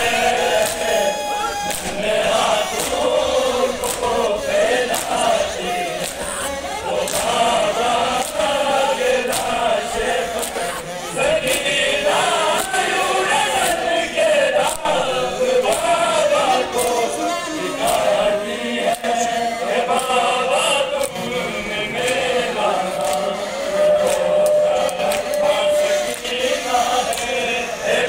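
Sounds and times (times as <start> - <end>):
men chanting together: 0.0 - 28.0
hands slapping chests: 0.1 - 13.0, 13.6 - 13.9, 14.6 - 16.1, 16.7 - 17.1, 17.8 - 18.2, 19.9 - 20.2, 22.9 - 23.4, 24.0 - 25.5.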